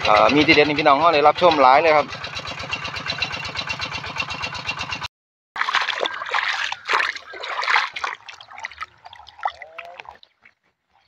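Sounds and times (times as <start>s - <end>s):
small engine running: 0.0s - 5.1s
water splashing and sloshing: 5.6s - 11.0s.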